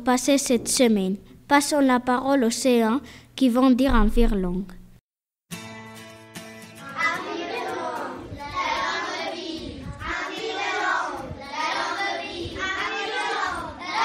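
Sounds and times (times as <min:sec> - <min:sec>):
children reciting in unison: 0:06.8 - 0:14.0.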